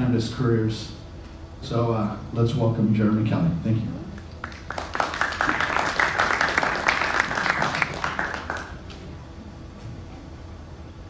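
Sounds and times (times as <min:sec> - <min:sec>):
audience applauding: 0:04.3 - 0:09.0.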